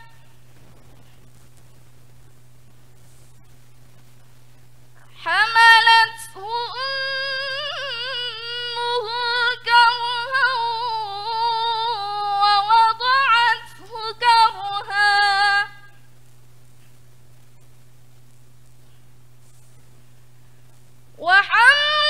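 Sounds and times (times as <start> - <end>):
woman chanting recitation: 5.1 - 15.9, 21.2 - 22.0.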